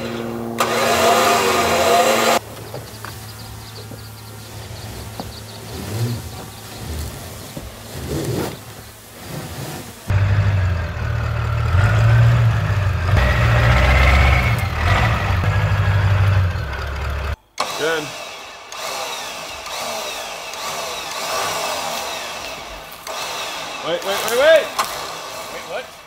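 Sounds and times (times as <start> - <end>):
faint bird chirps: 2.5 - 7.6
diesel engine idling: 10.1 - 17.4.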